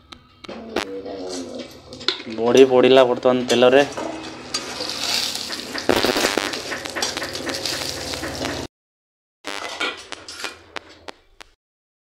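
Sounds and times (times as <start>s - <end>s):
metal spatula scraping pan: 3.4s - 8.7s
dumplings frying in hot oil: 4.5s - 8.7s.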